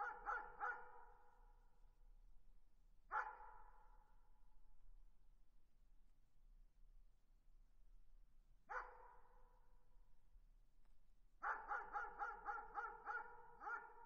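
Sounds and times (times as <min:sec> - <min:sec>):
distant dog barking: 0:00.0 - 0:01.0, 0:03.1 - 0:03.4, 0:11.4 - 0:14.0.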